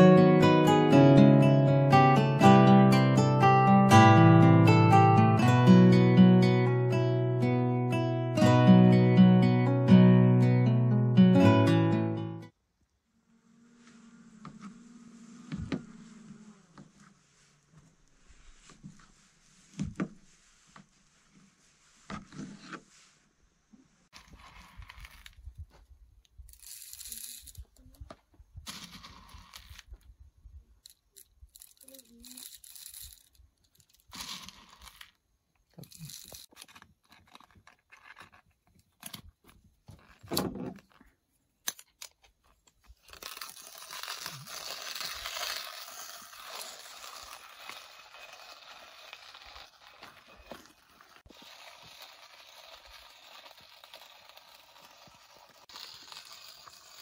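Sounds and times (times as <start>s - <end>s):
coffee grinder scraping and rattling: 24.1s - 25.6s, 26.4s - 27.8s, 28.6s - 30.0s, 30.8s - 39.2s, 42.9s - 57.0s
coffee beans crunching in grinder: 24.2s - 25.4s, 26.4s - 27.8s, 28.7s - 29.9s, 30.8s - 38.4s, 42.9s - 57.0s.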